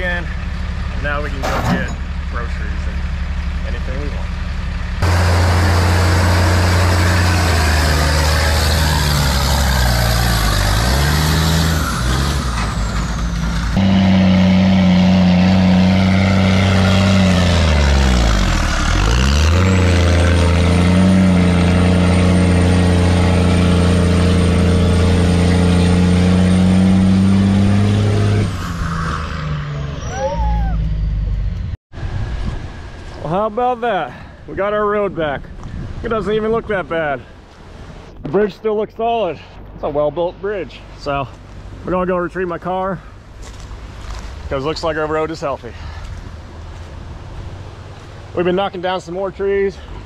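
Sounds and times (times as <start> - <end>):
heavy truck engine running: 0.0 - 28.4.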